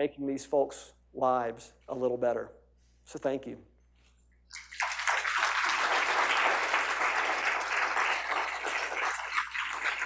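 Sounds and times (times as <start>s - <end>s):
audience applauding: 4.6s - 10.0s.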